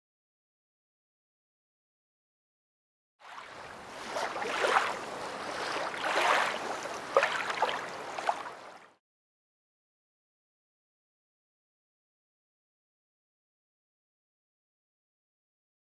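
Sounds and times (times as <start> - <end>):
water splashing and surging: 3.2 - 9.0.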